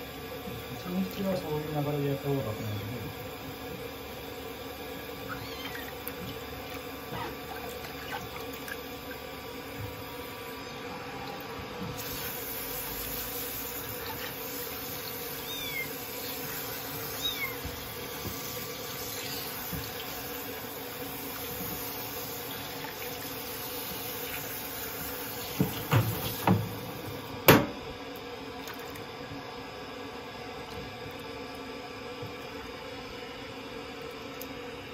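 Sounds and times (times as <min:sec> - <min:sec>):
shower water into plastic basin: 0:03.2 - 0:10.2, 0:11.2 - 0:27.2
kitten squeaking: 0:05.2 - 0:06.0, 0:15.3 - 0:17.8.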